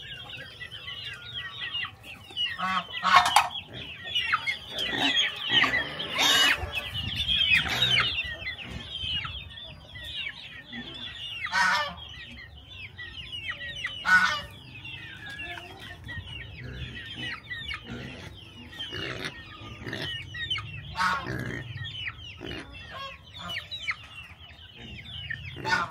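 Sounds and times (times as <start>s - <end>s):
chickens clucking: 0.0s - 25.9s
chicken squawks: 2.5s - 8.9s, 16.7s - 24.0s, 24.9s - 25.9s.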